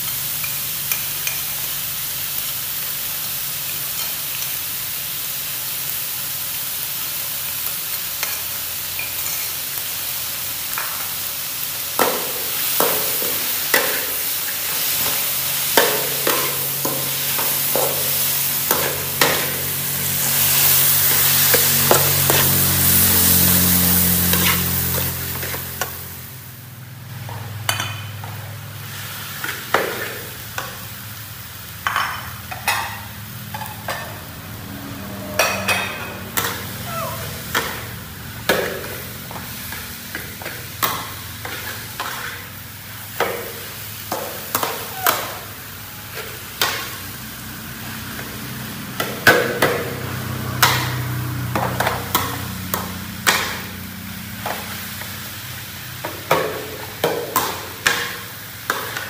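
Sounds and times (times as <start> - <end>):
food sizzling: 0.0 - 59.0
spatula scraping a wok: 7.9 - 9.6, 12.5 - 26.2, 31.9 - 47.0.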